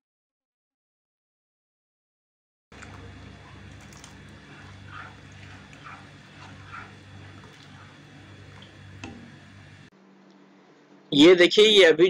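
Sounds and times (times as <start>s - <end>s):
spoon stirring milk in metal pan: 2.7s - 9.9s
steady low hum: 2.7s - 9.9s.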